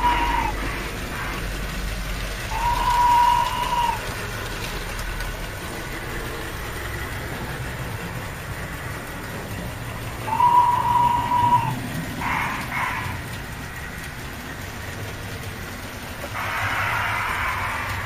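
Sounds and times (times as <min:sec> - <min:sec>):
whistle-like tone: 0:00.0 - 0:00.6, 0:02.5 - 0:04.1, 0:10.3 - 0:12.4
model trains rumbling on track: 0:00.0 - 0:18.0.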